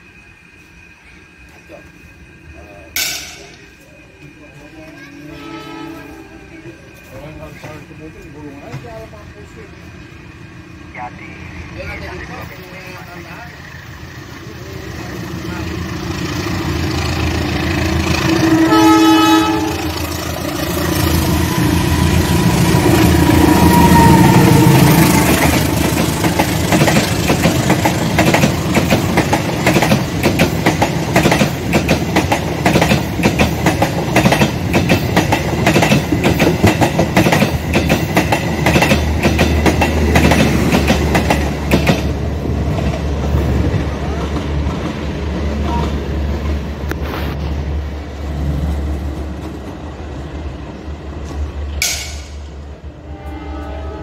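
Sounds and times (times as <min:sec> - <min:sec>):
locomotive engine passing: 0:01.3 - 0:54.0
locomotive horn blast: 0:05.3 - 0:06.5, 0:18.2 - 0:20.0, 0:52.9 - 0:54.0
train wheels clacking on rail joints: 0:25.1 - 0:47.3.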